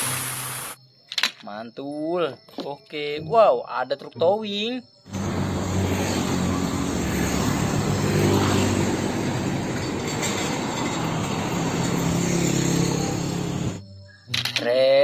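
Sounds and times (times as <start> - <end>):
truck diesel engine hum: 5.1 - 13.8
tyre and road noise: 5.1 - 13.8.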